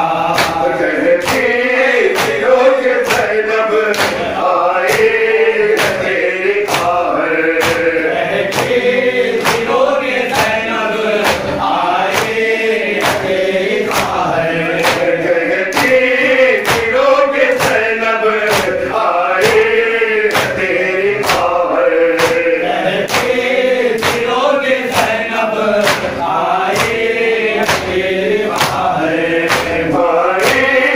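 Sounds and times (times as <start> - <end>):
men chanting into microphone: 0.0 - 30.9
hands slapping chests: 0.2 - 30.9.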